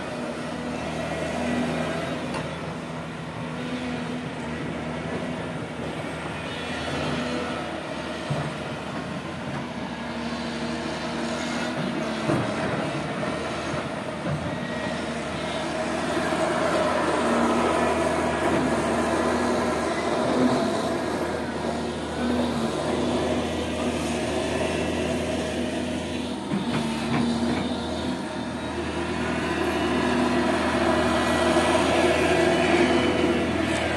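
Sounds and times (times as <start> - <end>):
excavator diesel engine running: 0.0 - 33.9.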